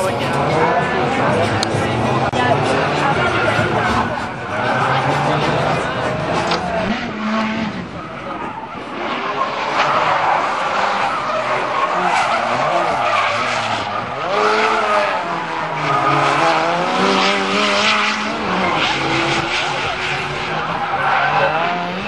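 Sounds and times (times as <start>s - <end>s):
car engine revving: 0.0s - 22.0s
tyres skidding and squealing: 0.0s - 22.0s.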